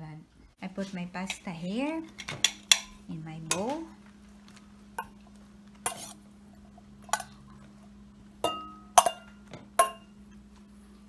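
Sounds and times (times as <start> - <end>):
steel bowl clinking against glass: 8.4 - 10.1.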